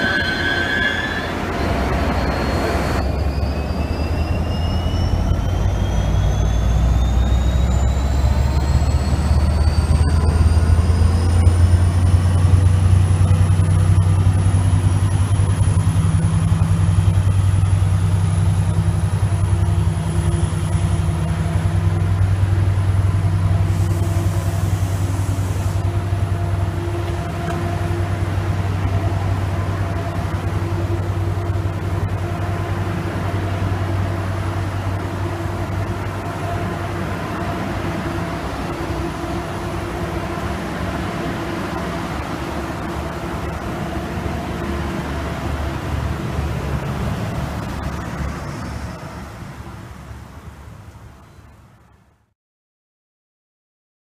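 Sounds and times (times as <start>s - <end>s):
high whines rising in pitch: 0.0s - 22.7s
locomotive engine drone: 0.0s - 52.2s.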